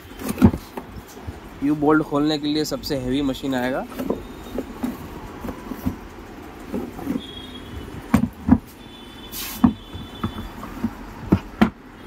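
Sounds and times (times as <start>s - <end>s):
brief hiss: 9.3s - 9.7s.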